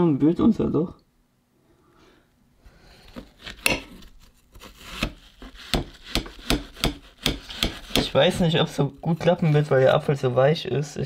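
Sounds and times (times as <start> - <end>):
knife cutting and scraping apple: 2.8 - 10.2.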